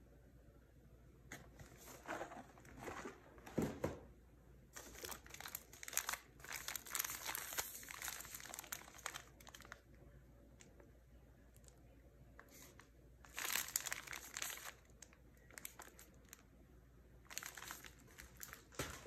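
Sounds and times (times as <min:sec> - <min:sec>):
packaging rustling and crinkling: 0:01.6 - 0:03.8, 0:04.8 - 0:09.8, 0:12.4 - 0:16.4, 0:17.3 - 0:19.0.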